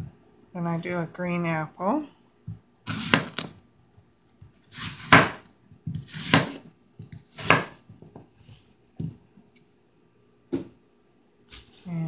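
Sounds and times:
knife cutting through apple: 0:02.9 - 0:03.6, 0:04.6 - 0:07.9, 0:11.5 - 0:12.0.

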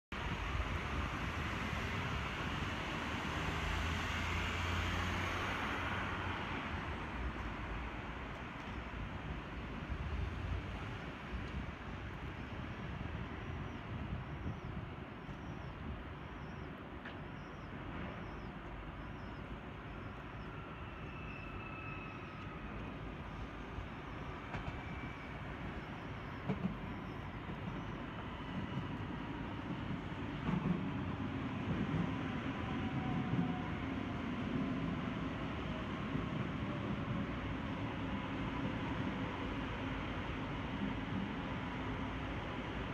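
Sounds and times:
electric train rumbling: 0:00.1 - 0:42.9.

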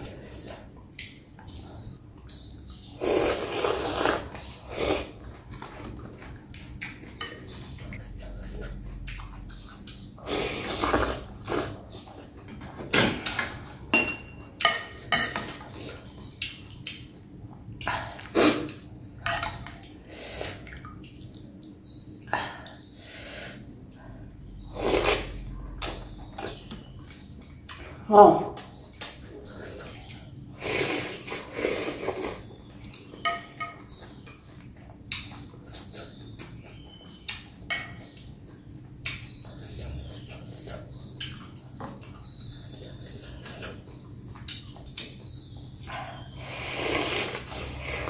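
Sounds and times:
eating noodles: 0:03.0 - 0:06.7, 0:24.8 - 0:26.6, 0:46.1 - 0:48.0
utensils clinking on glass bowl: 0:13.9 - 0:15.5.

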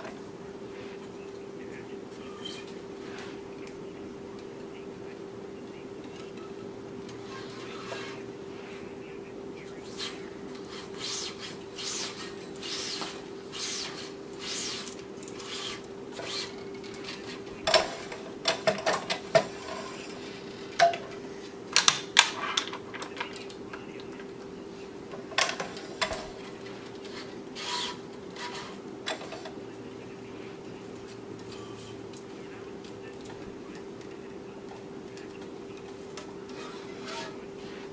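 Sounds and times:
steady machine hum: 0:00.0 - 0:37.9.

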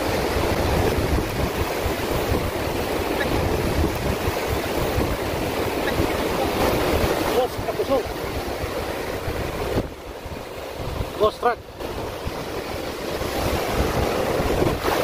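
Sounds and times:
surf breaking on beach: 0:00.0 - 0:15.0
wind buffeting microphone: 0:00.0 - 0:15.0.

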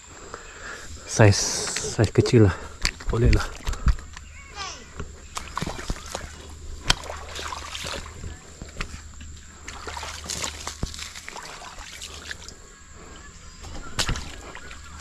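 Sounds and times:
stream water splashing: 0:05.3 - 0:09.0, 0:09.6 - 0:12.6, 0:13.7 - 0:15.0.

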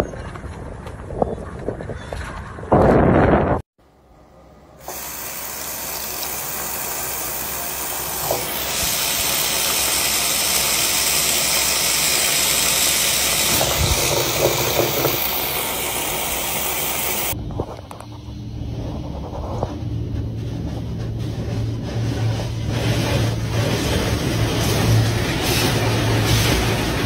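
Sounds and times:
tap water running into sink: 0:04.9 - 0:17.4.

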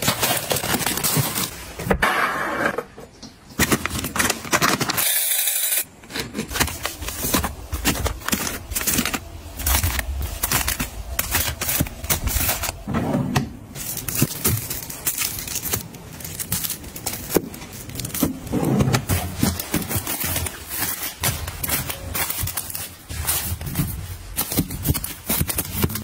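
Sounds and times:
plastic wrap crinkling: 0:00.0 - 0:01.8, 0:03.5 - 0:12.9, 0:13.6 - 0:26.0.

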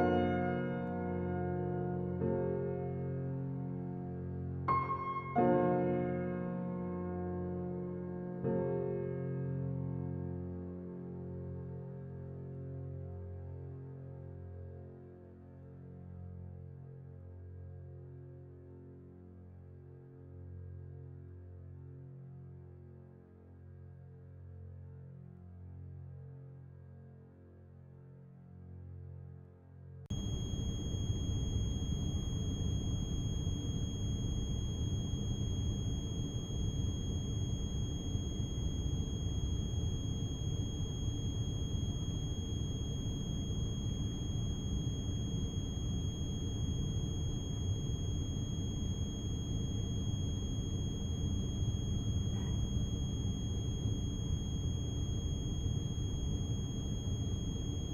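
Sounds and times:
high-pitched whine: 0:30.1 - 0:57.9
ship engine low rumble: 0:30.2 - 0:57.9.

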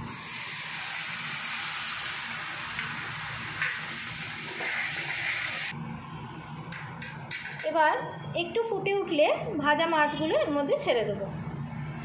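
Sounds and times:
water sizzling in hot oil: 0:00.0 - 0:05.7.

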